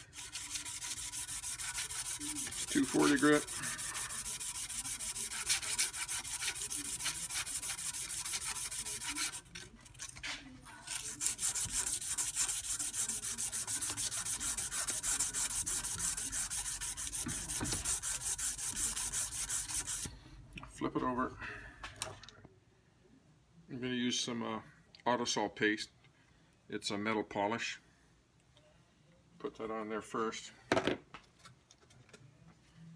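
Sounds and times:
sandpaper rasping on metal: 0.0 - 9.5, 10.9 - 20.1.

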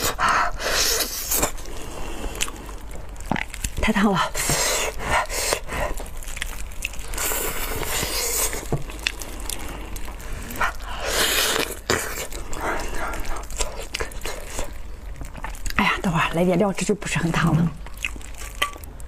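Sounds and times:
breathy hisses: 0.0 - 2.9, 4.2 - 6.2, 7.0 - 14.6
wet tearing of meat: 0.0 - 15.8
person chewing: 0.0 - 16.3, 17.4 - 19.0.

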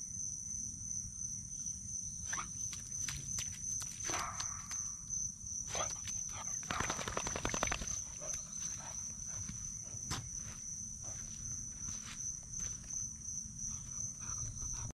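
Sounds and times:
high-pitched insect trill: 0.0 - 14.9
footsteps on wet ground: 7.8 - 13.0.

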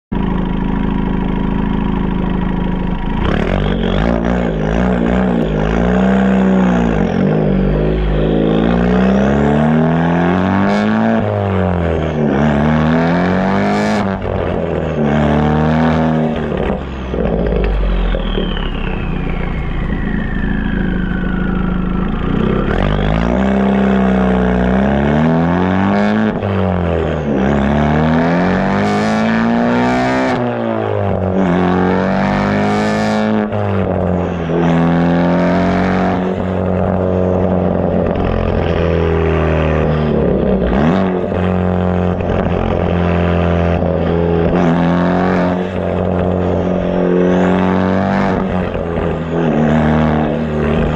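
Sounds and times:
car engine accelerating: 0.1 - 50.9
high whistle gliding down: 17.7 - 23.4.

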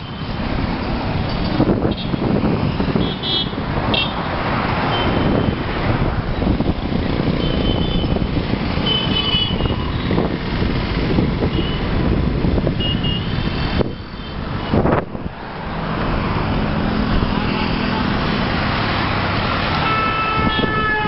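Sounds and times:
traffic rumble from moving vehicle: 0.0 - 21.0.

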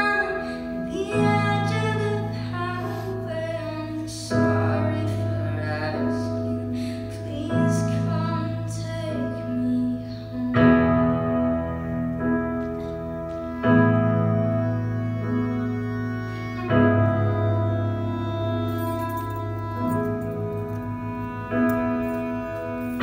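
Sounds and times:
woman singing: 0.0 - 11.2
violin: 0.0 - 23.0
keyboard chords: 8.1 - 23.0.

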